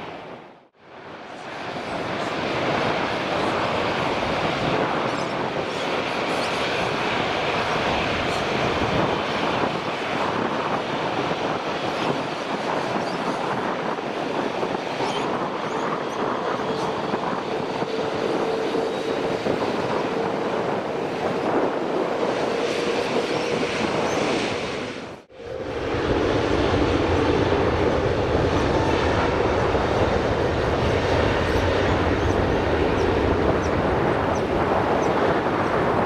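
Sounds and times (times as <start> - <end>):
jet engines roaring: 0.0 - 36.0
steady whining tone: 17.6 - 35.0.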